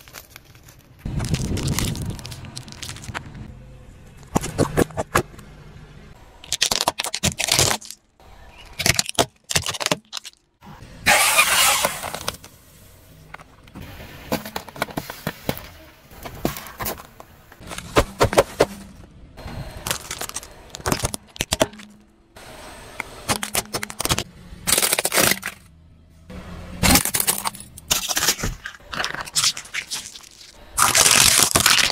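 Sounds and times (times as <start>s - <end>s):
tyre crushing objects: 8.6s - 10.4s, 14.3s - 19.0s, 19.8s - 22.0s, 23.3s - 25.7s, 26.8s - 31.9s.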